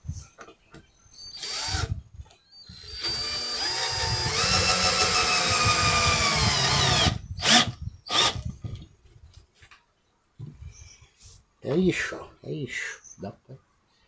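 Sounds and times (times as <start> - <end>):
cordless drill motor whine: 1.3 - 8.5
short drill motor bursts: 2.8 - 8.4.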